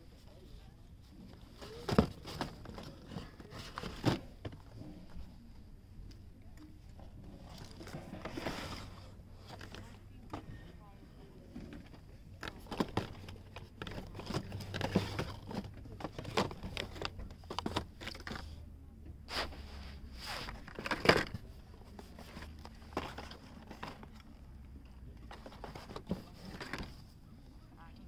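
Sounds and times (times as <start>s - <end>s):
boxes clattering: 1.4s - 5.0s, 7.4s - 10.6s, 11.5s - 18.6s, 19.3s - 24.4s, 25.2s - 27.2s.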